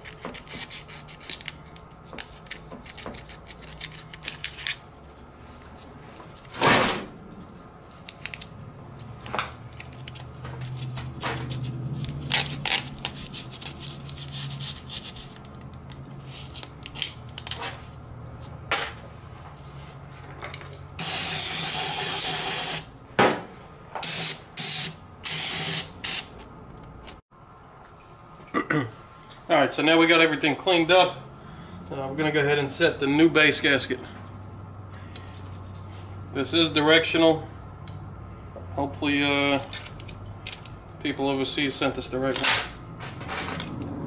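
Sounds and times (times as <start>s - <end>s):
aerosol spraying: 21.0s - 22.8s.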